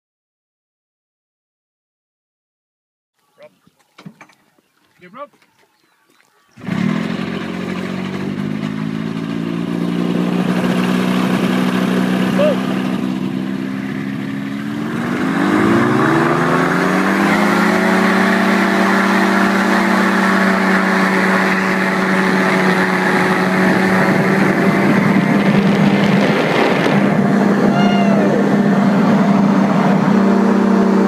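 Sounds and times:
paramotor engine and propeller: 6.6 - 31.0.

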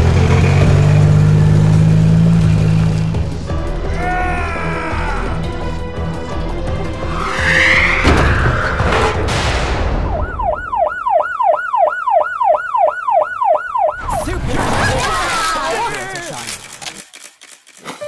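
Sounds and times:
background music: 0.4 - 11.0
rising whoosh: 6.4 - 10.8
police siren yelping: 10.0 - 14.2.

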